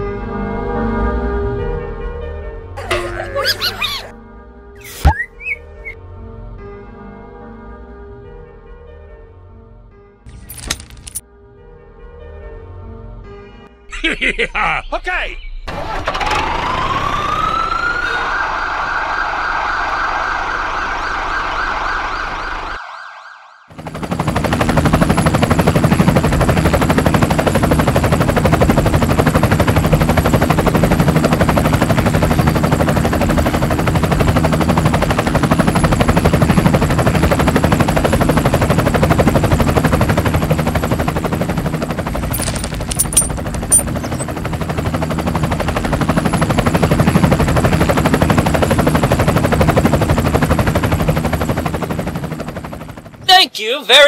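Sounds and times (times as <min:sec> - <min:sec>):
small machine rattling and humming: 0:23.8 - 0:51.3.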